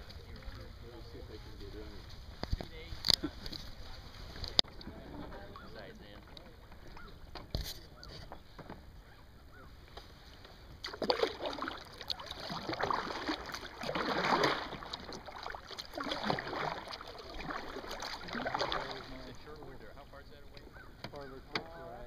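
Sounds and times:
kayak paddle swishing through water: 9.5 - 19.8.

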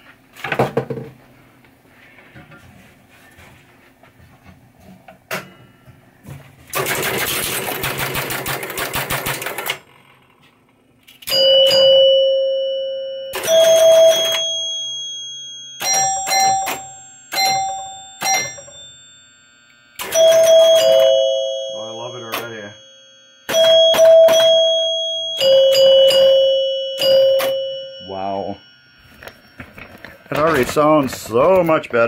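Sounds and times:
chimes ringing: 11.3 - 32.0.

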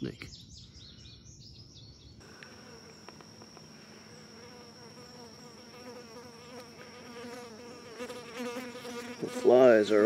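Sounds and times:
flies buzzing: 2.2 - 10.0.

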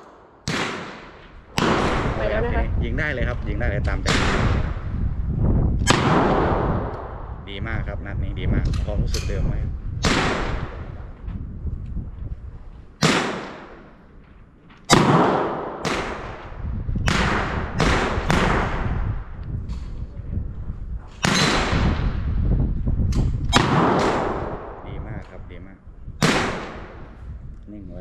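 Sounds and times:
pistol shots with ringing echo: 0.0 - 2.4, 5.8 - 7.2, 13.0 - 14.0, 14.9 - 19.0, 21.2 - 22.1, 23.5 - 24.9, 26.2 - 27.0.

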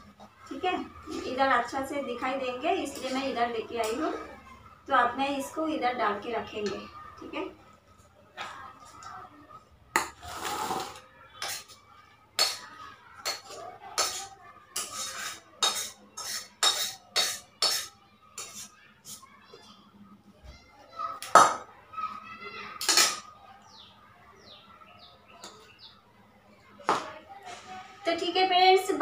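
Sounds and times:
metal spatula scraping metal pan: 10.2 - 11.7, 13.2 - 19.2.

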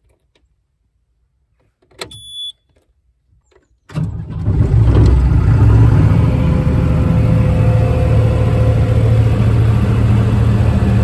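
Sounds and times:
short high beep: 2.1 - 2.6
diesel engine starting and running: 3.9 - 11.0.

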